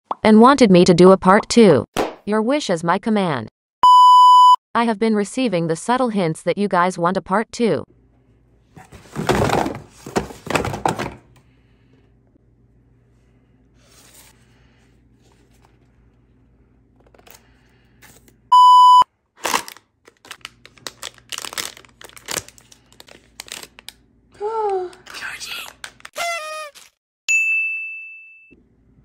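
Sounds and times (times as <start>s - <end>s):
short electronic bleep: 3.8s - 4.6s
foil bag crinkling and tearing: 19.4s - 24.0s, 25.1s - 27.0s.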